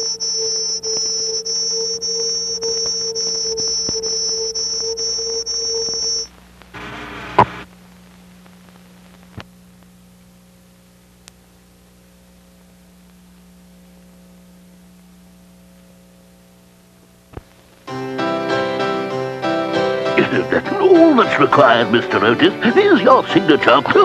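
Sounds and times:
high-and-low tone: 0.0s - 7.7s
electrical mains hum: 0.0s - 18.0s.

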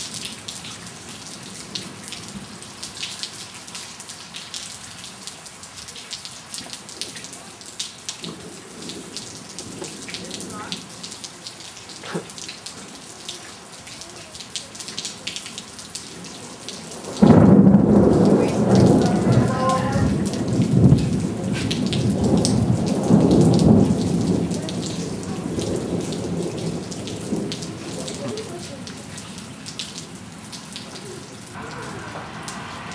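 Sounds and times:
heavy rain falling: 0.0s - 32.9s
thunder clap and rumble: 16.2s - 30.8s.

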